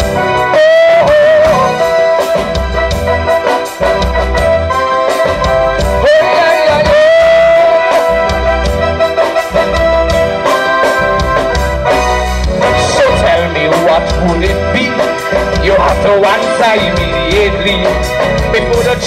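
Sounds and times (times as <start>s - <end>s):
live gospel calypso band: 0.0s - 19.0s.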